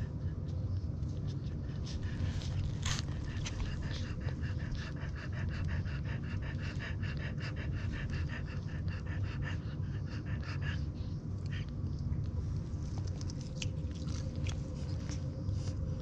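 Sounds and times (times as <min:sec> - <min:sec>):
dog panting rapidly: 0:01.3 - 0:11.8.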